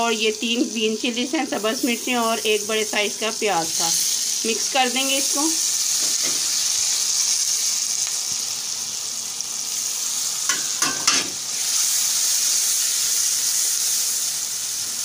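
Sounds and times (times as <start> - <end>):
spices sizzling in a wok: 0.0 - 15.0
spatula scraping a pan: 5.9 - 6.7.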